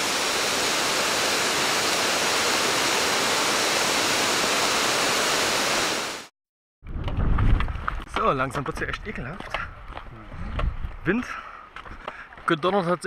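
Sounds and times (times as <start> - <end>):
waterfall rushing: 0.0 - 6.3.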